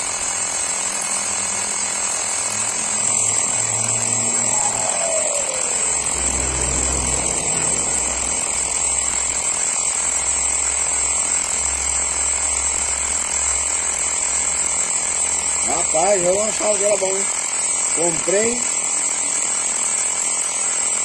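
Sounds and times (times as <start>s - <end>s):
electric tire inflator running: 0.0s - 21.0s
tone falling in pitch: 2.8s - 9.8s.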